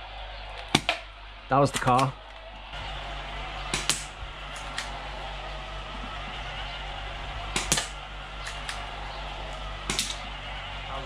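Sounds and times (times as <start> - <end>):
air pistol firing cracks: 7.6 - 8.8.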